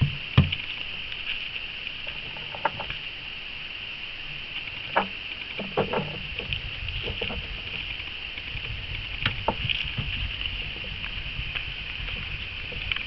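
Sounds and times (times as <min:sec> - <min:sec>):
steady high hiss: 0:00.0 - 0:13.0.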